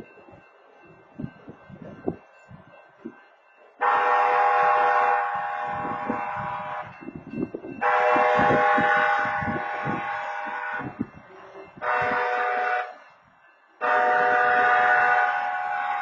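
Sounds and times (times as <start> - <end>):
train horn blasts: 3.8 - 7.1, 7.8 - 13.0, 13.8 - 16.0.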